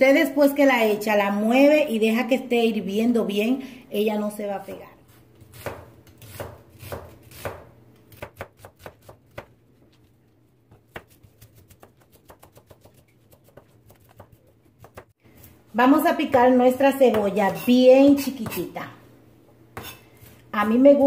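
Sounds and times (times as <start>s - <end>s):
knife cutting onion on plastic board: 4.6s - 10.1s, 10.7s - 15.5s, 19.7s - 21.0s.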